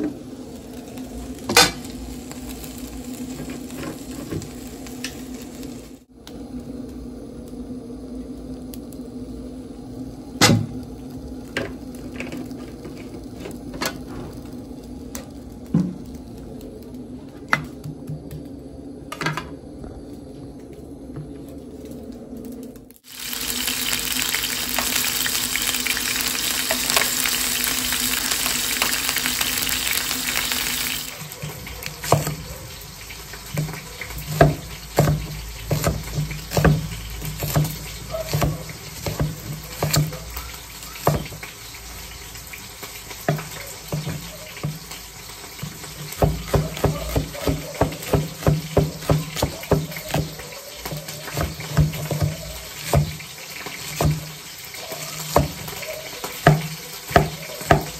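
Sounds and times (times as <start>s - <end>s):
meat sizzling in a frying pan: 0.0s - 6.1s, 6.9s - 17.3s, 22.8s - 57.9s
knife chopping onion on wooden board: 34.3s - 40.2s, 46.1s - 53.2s, 56.4s - 57.9s.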